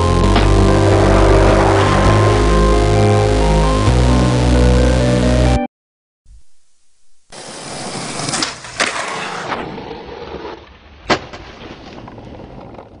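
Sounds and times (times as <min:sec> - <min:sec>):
skateboard rolling: 0:07.4 - 0:13.0
skateboard clacks: 0:11.1 - 0:13.0.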